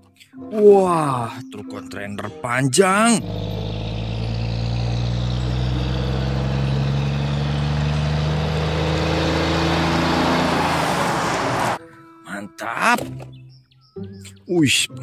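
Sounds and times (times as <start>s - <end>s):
diesel truck engine running: 3.0s - 11.8s
tyre and road noise: 3.0s - 11.8s.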